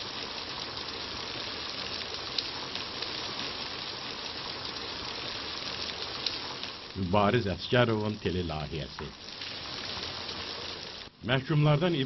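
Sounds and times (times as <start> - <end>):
faint crackles and clicks: 0.0 - 12.0
steady hiss: 0.0 - 12.0.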